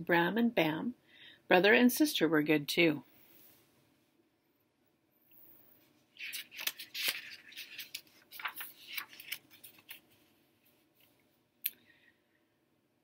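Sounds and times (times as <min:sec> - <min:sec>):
book pages rustling: 0:05.8 - 0:11.3.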